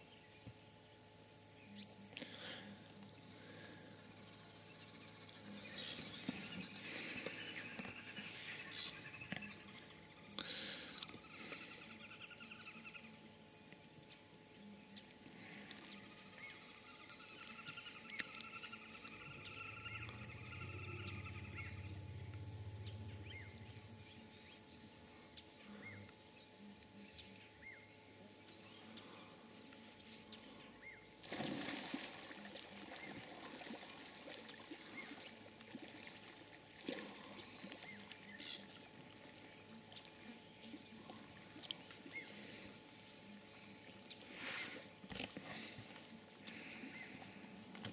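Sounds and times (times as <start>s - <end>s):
high-pitched drone: 17.6s - 24.6s.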